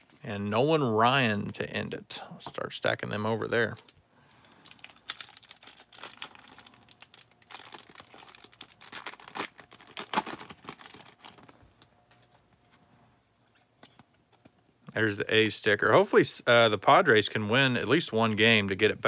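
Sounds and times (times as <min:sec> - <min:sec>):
foil wrapper crinkling and tearing: 0:03.6 - 0:11.6.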